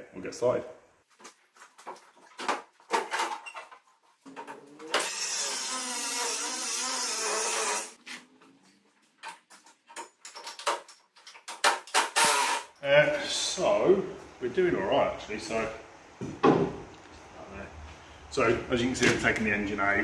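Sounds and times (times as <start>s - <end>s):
angle grinder cutting metal: 4.9s - 8.0s.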